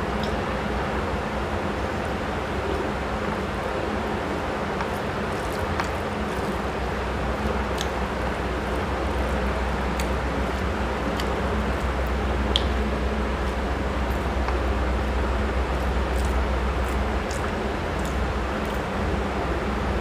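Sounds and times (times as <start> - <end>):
fingers squishing rice: 1.6 - 19.4
wet eating mouth sounds: 7.4 - 18.9.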